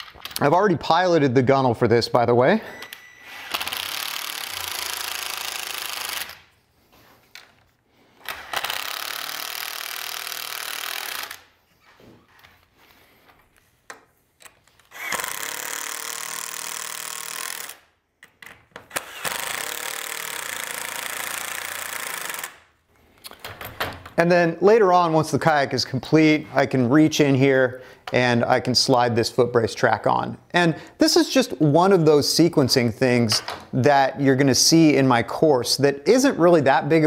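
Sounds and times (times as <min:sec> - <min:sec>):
impact driver driving screws into wood: 0:02.8 - 0:06.4, 0:08.2 - 0:11.5, 0:14.8 - 0:17.8, 0:18.5 - 0:22.6.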